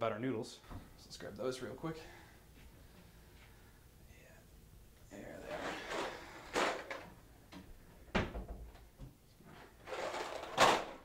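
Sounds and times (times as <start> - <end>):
cupboard doors opening and shutting: 5.4 - 11.0.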